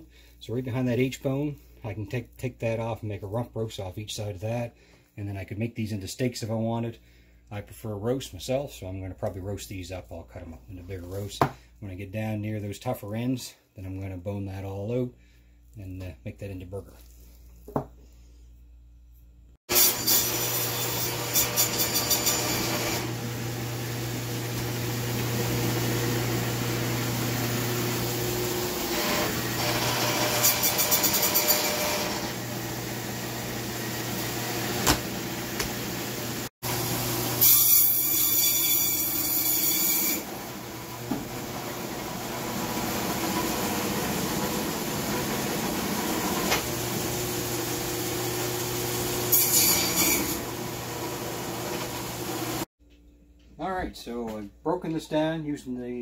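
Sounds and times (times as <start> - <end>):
meat bandsaw motor hum: 19.7 - 52.7.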